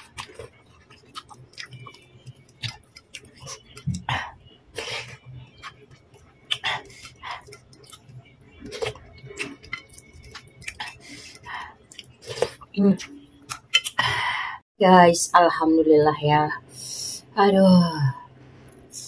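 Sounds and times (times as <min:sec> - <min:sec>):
chewing: 0:00.0 - 0:14.0.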